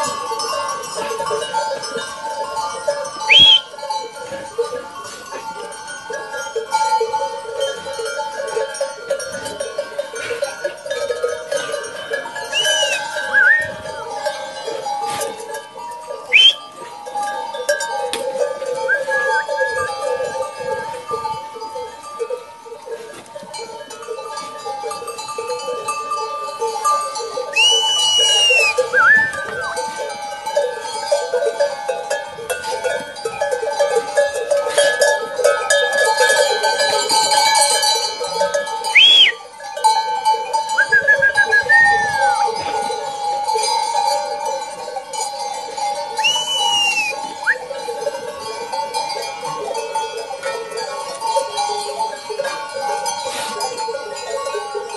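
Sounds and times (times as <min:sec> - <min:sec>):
sheep bells clanking: 0:00.0 - 0:54.9.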